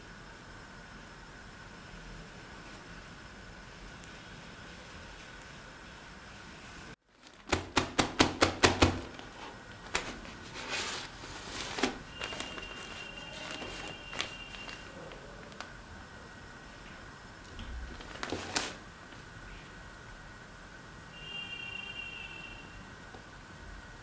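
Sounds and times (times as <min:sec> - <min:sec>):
rustling: 0:09.0 - 0:15.7
faint high whine: 0:10.6 - 0:18.3, 0:19.3 - 0:24.0.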